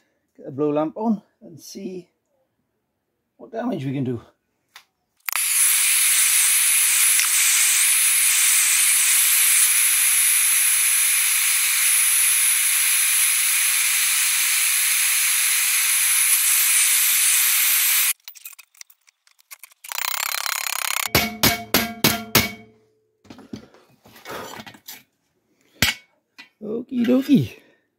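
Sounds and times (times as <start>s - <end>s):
blow lamp flame hissing: 6.1s - 18.2s.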